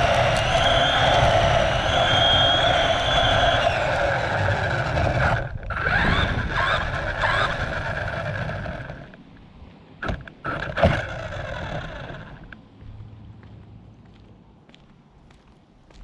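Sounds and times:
radio-controlled car motor whining: 0.0 - 9.2, 10.0 - 12.6.

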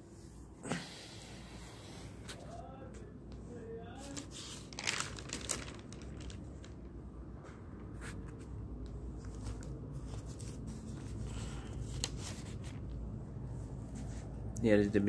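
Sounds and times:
low background hum: 0.0 - 15.0
newspaper pages rustling: 4.0 - 14.3.

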